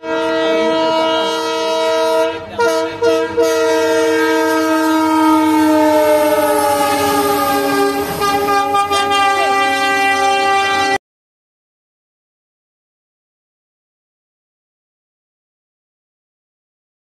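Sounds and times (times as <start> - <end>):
locomotive horn blast: 0.0 - 11.0.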